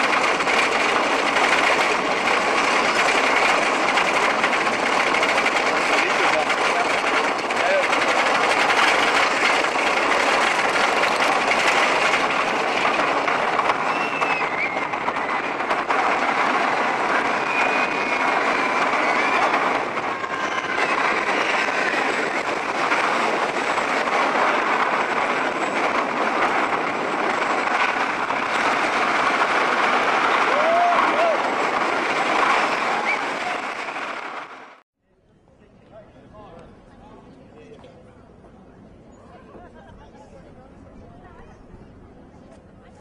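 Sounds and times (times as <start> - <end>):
ride train rumbling on track: 0.0 - 34.8, 35.7 - 43.0
faint high squeals: 13.8 - 15.5.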